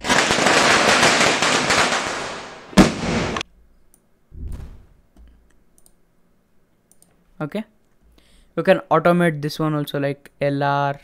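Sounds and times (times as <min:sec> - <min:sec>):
firecrackers crackling: 0:00.0 - 0:03.4
loud firecracker bang: 0:00.2 - 0:03.4.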